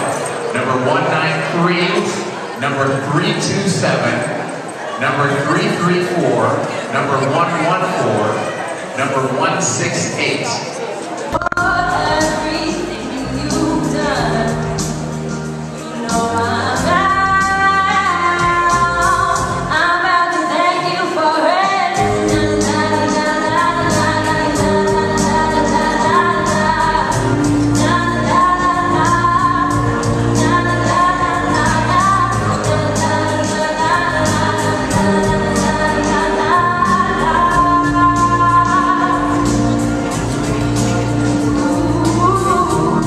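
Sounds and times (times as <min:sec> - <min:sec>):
woman singing into microphone: 0:11.4 - 0:43.0.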